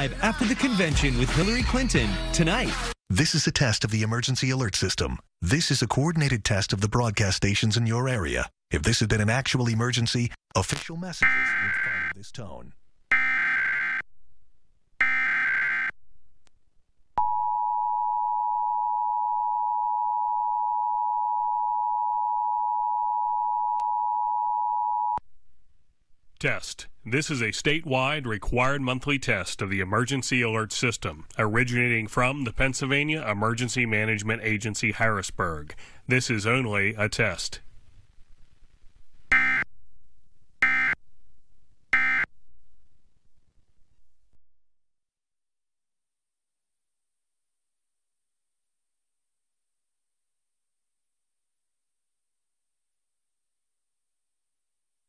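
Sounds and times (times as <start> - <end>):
digital data tone bursts: 11.2 - 12.2.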